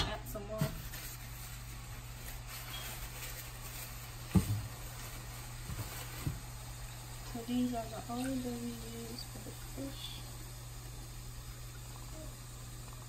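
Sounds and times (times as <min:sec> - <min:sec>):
sauce sizzling in a pot: 0:00.3 - 0:13.0.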